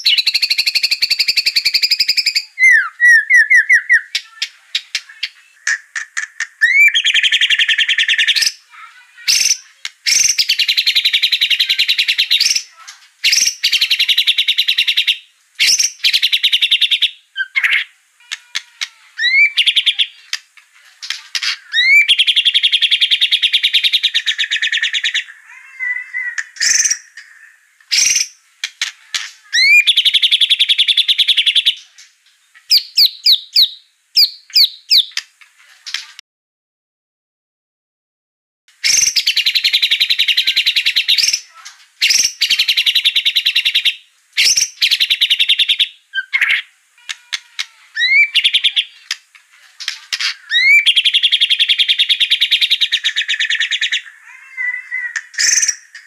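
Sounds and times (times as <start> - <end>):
bird singing with whistles and trills: 0.0 - 8.6, 9.3 - 12.7, 13.3 - 17.9, 19.2 - 20.2, 21.8 - 25.3, 29.6 - 31.8, 32.7 - 35.2, 38.9 - 46.6, 48.0 - 49.2, 50.5 - 54.1, 54.9 - 56.0.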